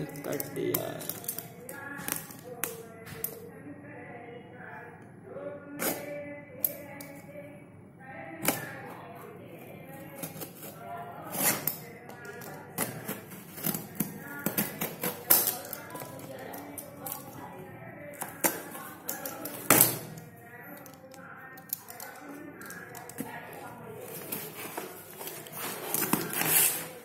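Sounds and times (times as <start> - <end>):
utility knife cutting packing tape: 12.8 - 16.2, 24.1 - 27.0.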